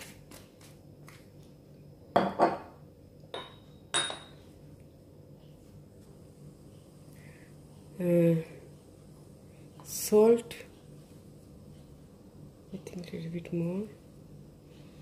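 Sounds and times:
glass bottle set down: 0:02.2 - 0:02.8.

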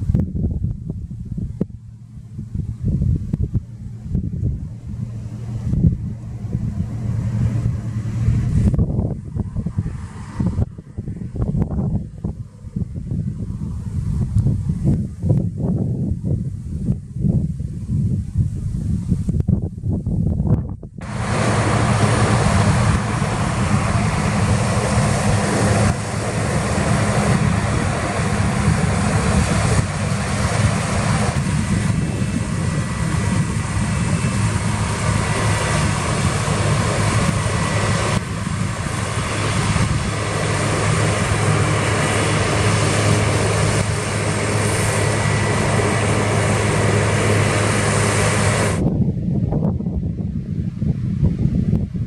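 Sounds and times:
combine harvester droning: 0:00.0 - 0:18.7, 0:21.0 - 0:49.6.

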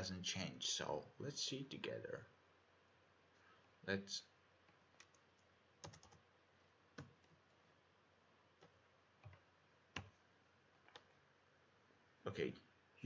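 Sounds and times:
keyboard keys clicking: 0:05.8 - 0:06.2.

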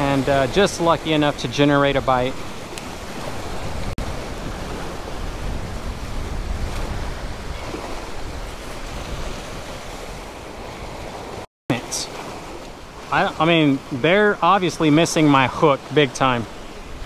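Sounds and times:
wind rumbling on microphone: 0:00.0 - 0:11.4
sea surf breaking on rocks: 0:00.0 - 0:17.0.

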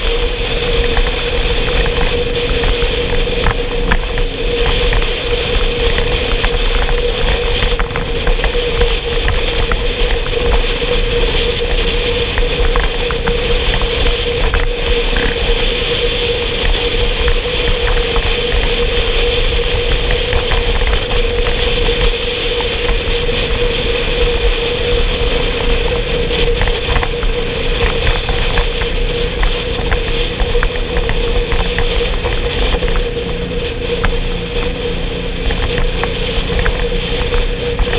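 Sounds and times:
motorcycle engine cruising: 0:00.0 - 0:37.9
wind rumbling on microphone: 0:00.0 - 0:37.9.

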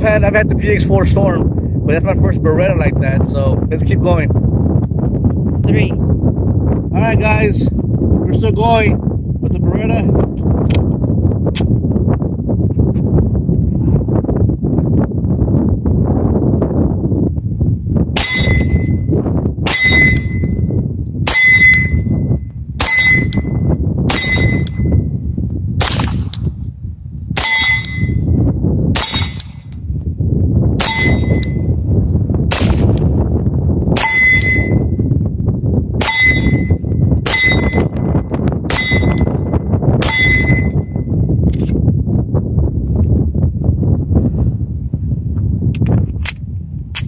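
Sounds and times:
wind buffeting microphone: 0:00.0 - 0:47.0
steel plate target ringing: 0:18.2 - 0:19.1, 0:19.7 - 0:20.6, 0:21.3 - 0:25.0, 0:27.4 - 0:28.4, 0:29.0 - 0:29.7, 0:30.8 - 0:31.7, 0:34.0 - 0:35.0, 0:36.0 - 0:38.1, 0:38.7 - 0:41.0
pistol shots: 0:25.8 - 0:26.4.

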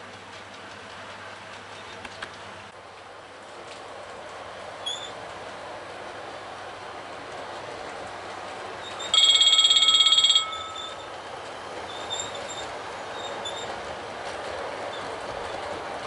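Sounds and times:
model train rolling: 0:00.0 - 0:16.0
faint short squeaks: 0:04.8 - 0:05.2, 0:11.9 - 0:13.8.

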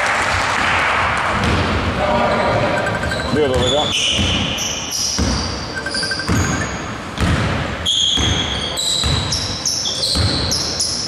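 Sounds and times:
sneaker squeaks: 0:02.8 - 0:11.0
basketball bouncing on wooden floor: 0:03.6 - 0:04.6, 0:05.2 - 0:05.5, 0:07.2 - 0:07.6, 0:10.2 - 0:10.5.

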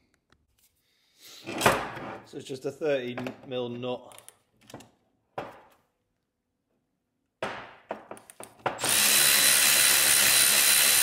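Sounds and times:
cordless impact wrench running: 0:08.8 - 0:11.0.

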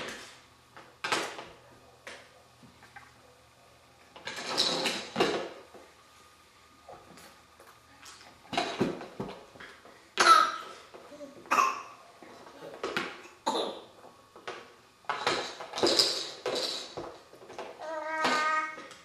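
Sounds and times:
baby coughing: 0:10.2 - 0:10.7, 0:11.5 - 0:12.0, 0:13.4 - 0:13.9.

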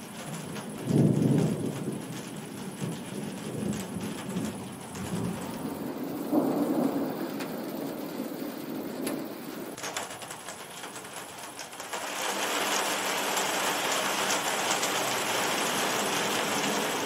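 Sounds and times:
thunder rumbling: 0:00.0 - 0:10.4
steady rain: 0:00.0 - 0:17.0.

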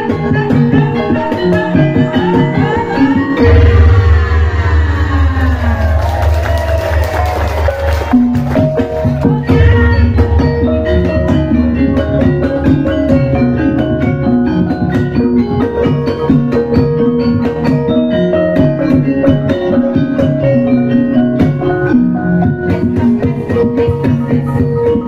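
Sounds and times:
gong-kettles and metallophones ringing: 0:01.4 - 0:06.6, 0:08.1 - 0:22.4.

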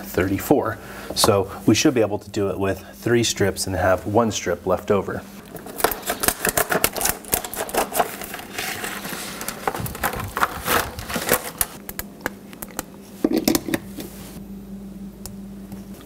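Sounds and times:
plastic packaging crinkling: 0:05.3 - 0:11.8.

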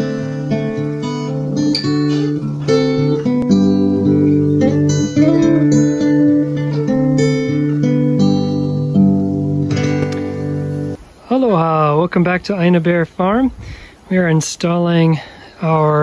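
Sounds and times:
acoustic guitar music: 0:00.0 - 0:13.5.

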